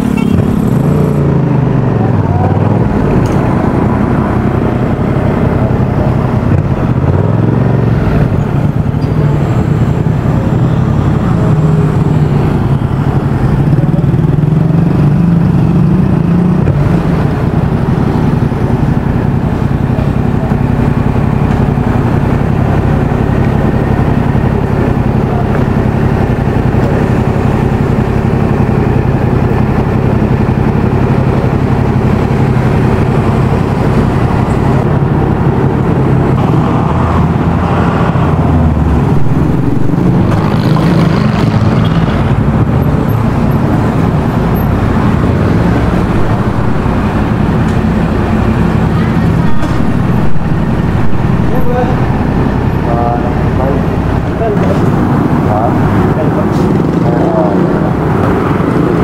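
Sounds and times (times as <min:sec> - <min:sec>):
motorcycle engine idling: 0:17.3 - 0:36.3.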